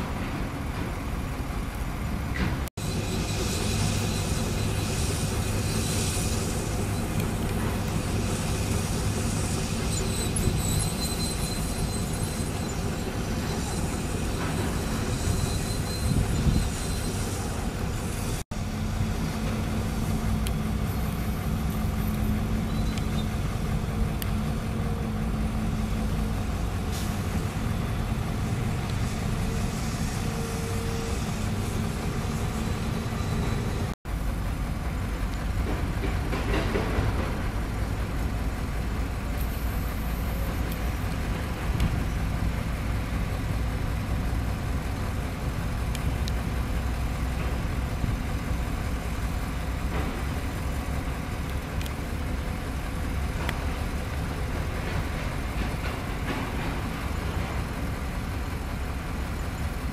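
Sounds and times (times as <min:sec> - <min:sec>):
excavator engine drone: 0:00.0 - 0:59.9
faint squeal: 0:08.6 - 0:18.3, 0:29.5 - 0:33.9.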